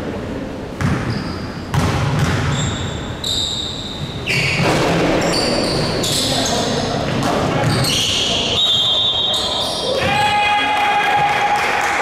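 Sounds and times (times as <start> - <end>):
basketball bouncing on wood floor: 0.8 - 2.9
sneakers squeaking on court: 0.8 - 10.0.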